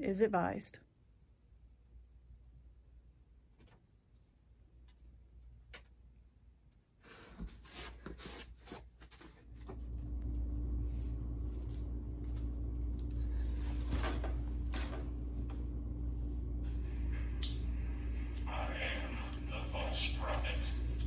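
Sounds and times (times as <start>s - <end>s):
person moving and rustling: 6.9s - 15.0s
steady low hum: 9.2s - 21.0s.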